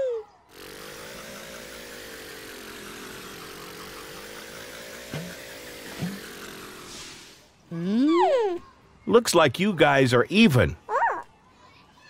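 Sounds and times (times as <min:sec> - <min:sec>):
cartoon engine hum: 0:00.0 - 0:08.6.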